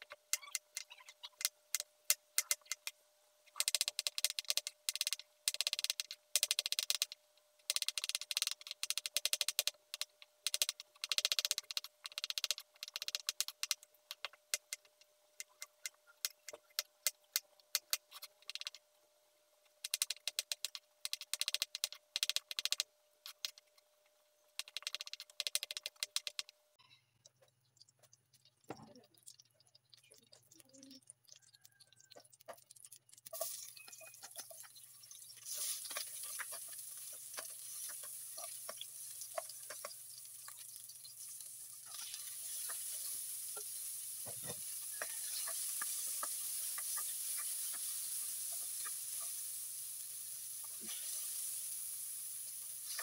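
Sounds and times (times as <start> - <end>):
spatula clicks and pops: 0.0 - 18.8, 19.8 - 23.6, 24.6 - 26.5, 27.4 - 42.8
onions sizzling in oil: 33.3 - 53.0.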